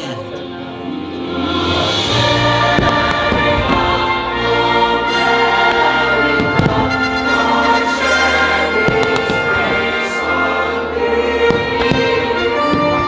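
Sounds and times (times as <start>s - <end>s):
orchestral music: 0.0s - 13.0s
fireworks bangs: 2.2s - 4.4s, 5.2s - 10.2s, 11.5s - 13.0s.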